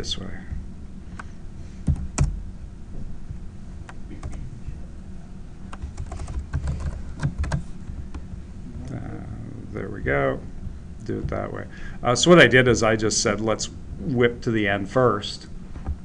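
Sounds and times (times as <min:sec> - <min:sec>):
typing on computer keyboard: 0:05.7 - 0:07.6.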